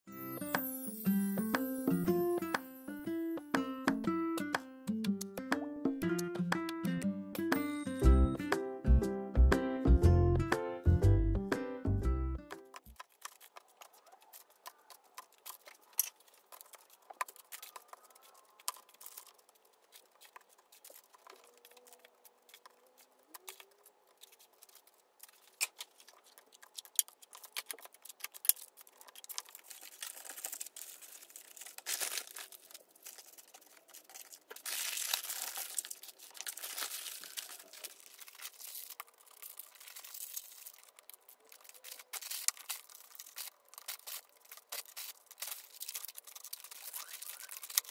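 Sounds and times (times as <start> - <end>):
plastic pots clicking and tapping: 12.5 - 29.6
packaging crinkling and tearing: 12.7 - 47.9
paper rustling and crinkling: 12.7 - 47.9.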